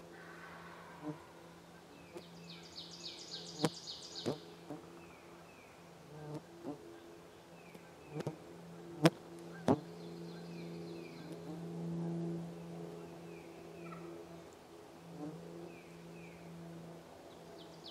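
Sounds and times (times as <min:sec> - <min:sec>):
songbird trill: 0:00.0 - 0:17.9
insect buzzing: 0:02.1 - 0:05.1, 0:06.0 - 0:07.0, 0:07.7 - 0:17.9.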